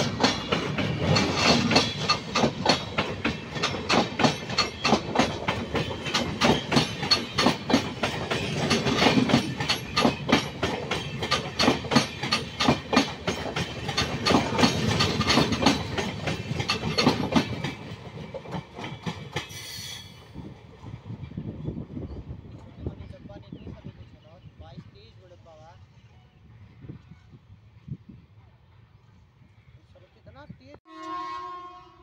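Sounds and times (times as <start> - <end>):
train wheels clattering over rails: 0.0 - 23.2
train rumble: 0.0 - 29.6.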